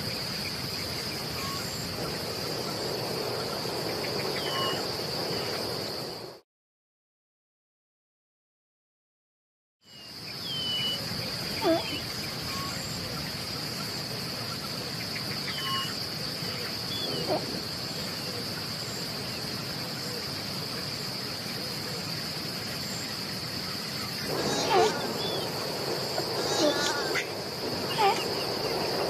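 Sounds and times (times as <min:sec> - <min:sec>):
high-pitched insect drone: 0:00.0 - 0:06.3, 0:10.4 - 0:29.0
animal cries: 0:11.6 - 0:12.7, 0:17.0 - 0:17.7, 0:24.3 - 0:28.9.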